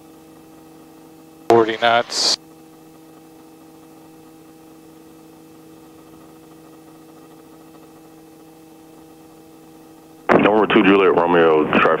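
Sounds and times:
faint helicopter noise: 0.0s - 12.0s
intercom hum and hiss: 1.5s - 2.4s, 10.3s - 12.0s.

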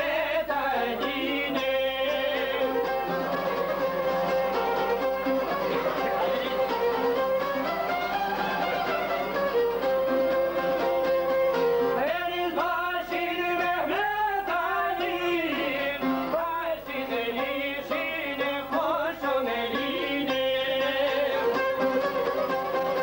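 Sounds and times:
man singing ornamented line: 0.0s - 4.2s, 5.4s - 7.4s, 12.0s - 21.9s
folk music on lute and violin: 0.0s - 23.0s.

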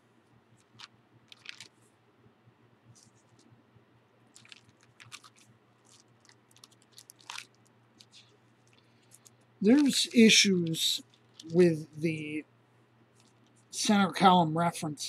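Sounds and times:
thin book pages crackling: 0.6s - 1.8s, 4.3s - 11.6s.

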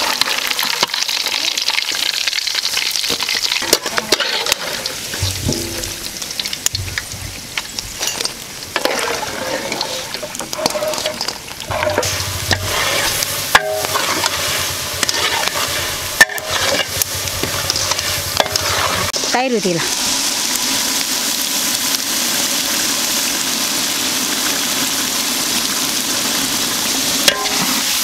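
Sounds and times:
hot oil sizzling: 0.0s - 28.0s
ladle stirring in large pot: 3.1s - 6.4s, 8.0s - 19.2s
metal ladle scraping and clinking: 3.6s - 6.1s, 8.0s - 19.2s.

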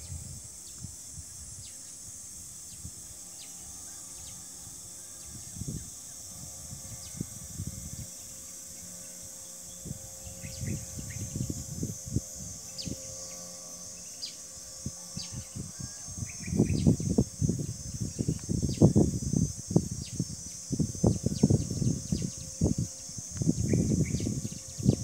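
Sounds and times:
high-pitched insect chorus: 0.0s - 25.0s
low rumble on microphone: 14.7s - 25.0s.

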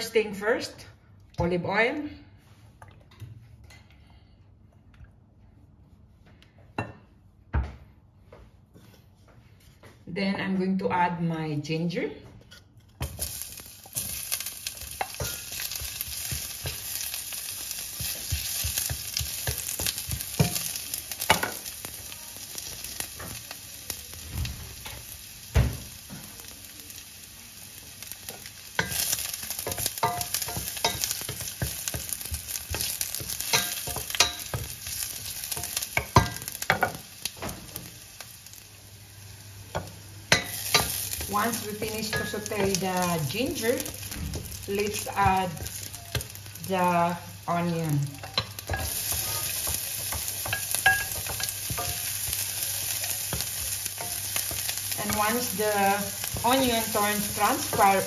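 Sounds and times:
ginger sizzling in oil: 13.0s - 58.0s.

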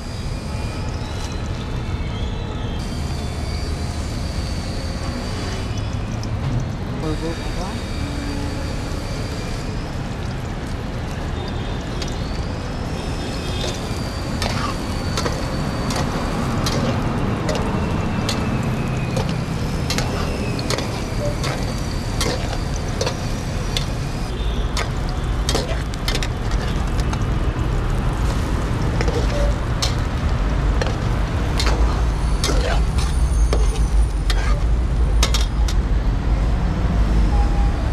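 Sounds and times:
spoon and spatula scraping a pan: 13.6s - 24.0s, 24.8s - 27.1s, 28.3s - 30.2s, 30.8s - 35.6s.

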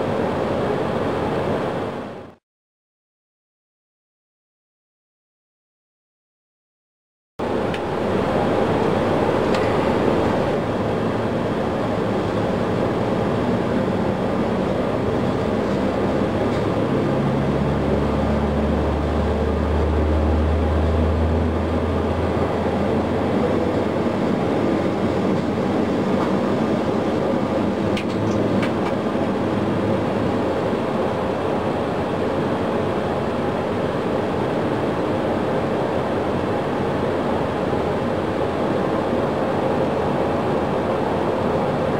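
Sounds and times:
jet engine rumble and rush: 0.0s - 2.4s, 7.4s - 41.9s
low hum: 7.4s - 35.4s.

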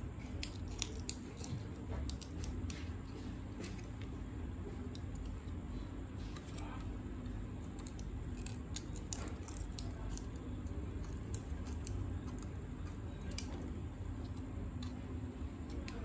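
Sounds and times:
scissors snipping plastic: 0.1s - 3.0s, 7.7s - 16.0s.

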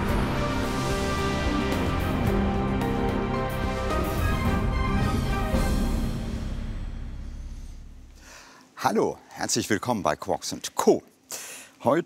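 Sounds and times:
steady low bass: 0.0s - 8.2s
theme music with sustained notes: 0.0s - 8.3s.

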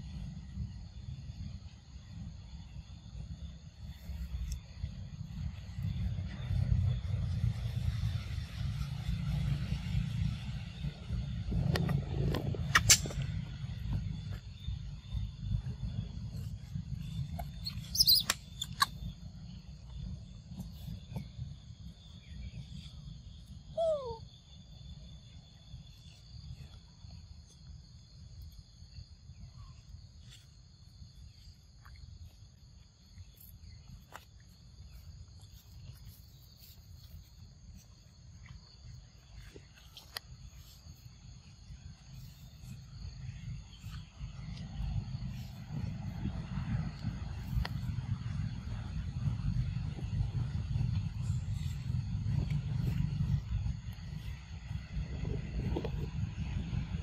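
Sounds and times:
low rumble: 0.0s - 31.7s, 34.7s - 57.0s
high insect drone: 0.0s - 57.0s
sharp clicks: 12.7s - 13.3s
macaque squeak: 17.5s - 19.0s, 23.8s - 24.2s.

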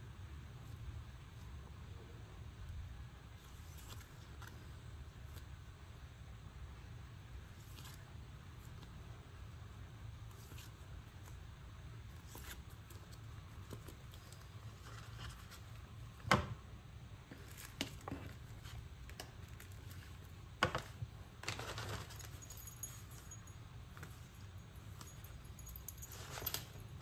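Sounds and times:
low steady hum: 0.0s - 27.0s
plastic sleeves crinkling: 17.3s - 22.8s.

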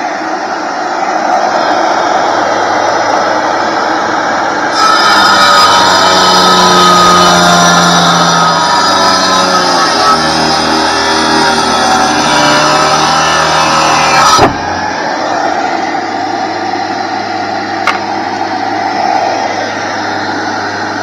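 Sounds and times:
wet tile saw cutting brick: 4.7s - 15.0s.

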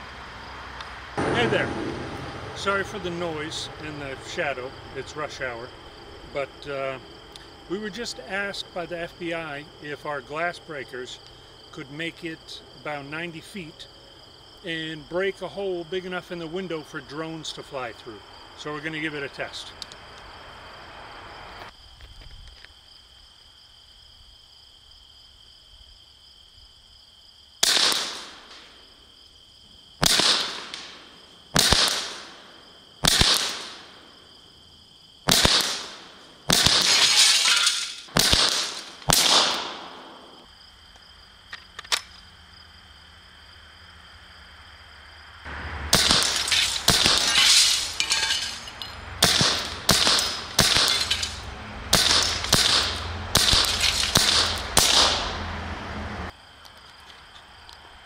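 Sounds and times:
crickets chirping: 0.0s - 58.0s
compressed-air launcher shots: 1.2s - 3.0s, 51.9s - 55.3s
rounds smashing into a window: 35.4s - 39.9s, 45.9s - 55.4s.

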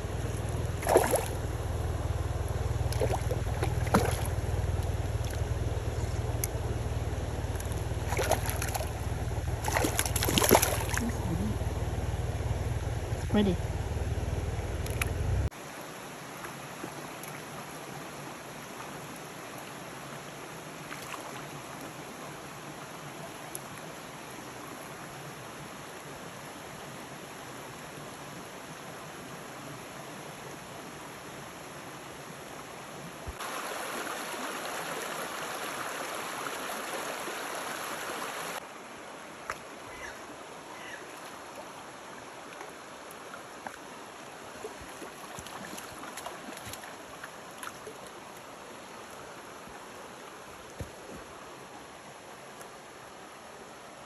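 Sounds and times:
mountain stream water rushing: 0.0s - 54.0s
faint clicks: 6.0s - 6.6s, 14.8s - 15.2s.

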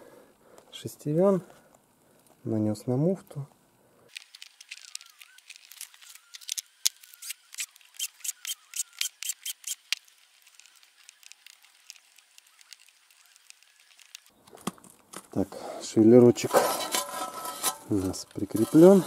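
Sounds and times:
crisp scraping or clicking strokes: 4.1s - 14.3s.

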